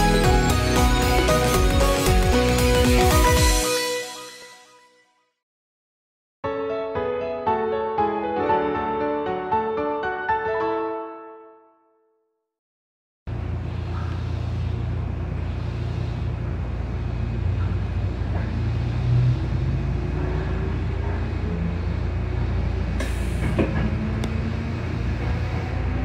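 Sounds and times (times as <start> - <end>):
train wheels rumbling on rail: 13.3 - 26.0.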